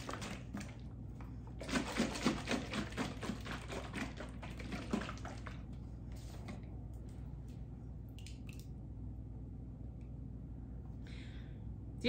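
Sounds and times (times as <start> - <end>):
liquid sloshing in glass jar: 1.5 - 5.7.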